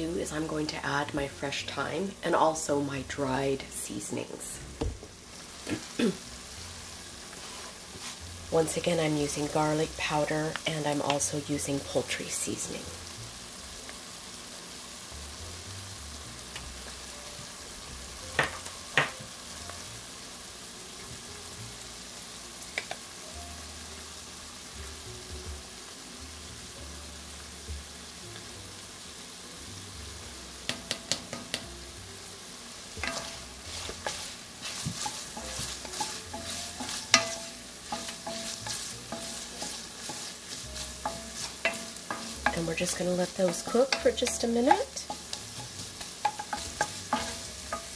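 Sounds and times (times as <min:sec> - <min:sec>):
vegetables sizzling in butter: 0:00.0 - 0:47.9
wooden spatula knocking against pot: 0:46.2 - 0:47.9.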